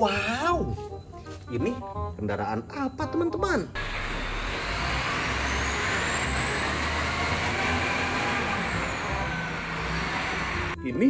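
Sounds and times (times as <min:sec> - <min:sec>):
diesel engine rumbling: 0:03.8 - 0:10.8
high hydraulic whine: 0:03.8 - 0:10.8.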